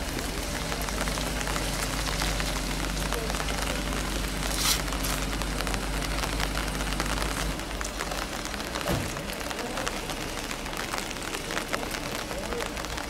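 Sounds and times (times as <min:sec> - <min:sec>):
rain patter: 0:00.0 - 0:13.0
soft thump: 0:08.8 - 0:09.2.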